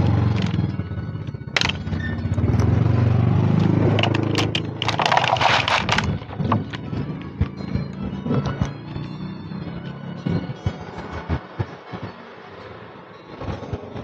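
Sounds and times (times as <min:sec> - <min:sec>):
vehicle engine humming: 0:00.0 - 0:14.0
plastic tray crackling rustle: 0:04.0 - 0:06.8.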